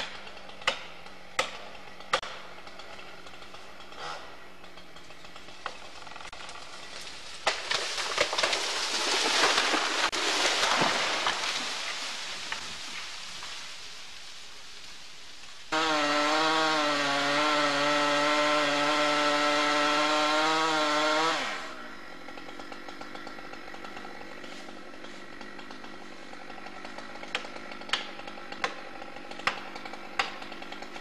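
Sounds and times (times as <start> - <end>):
wood cracking: 0.0 - 4.0, 4.6 - 31.0
tree crashing through branches: 5.4 - 21.6.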